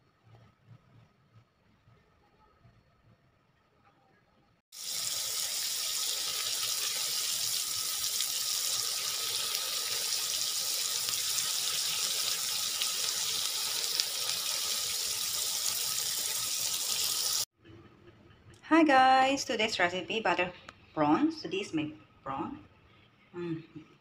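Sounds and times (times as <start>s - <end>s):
prawns sizzling in a pan: 4.7s - 17.5s.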